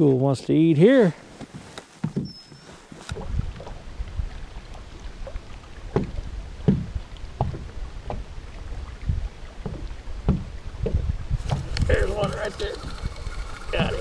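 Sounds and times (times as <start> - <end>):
waves slapping boat hull: 2.9 - 14.0.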